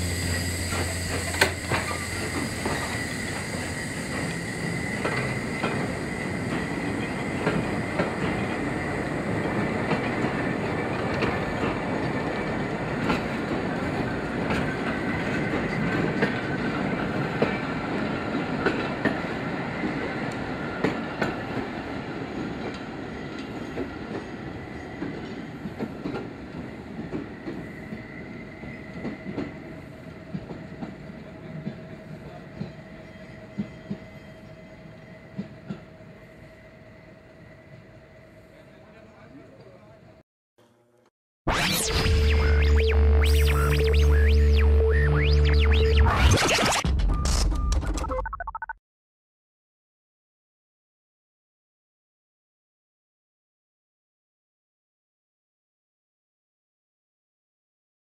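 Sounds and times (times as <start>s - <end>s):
high wheel squeal: 0.0s - 8.9s
steam train rolling past: 0.0s - 40.0s.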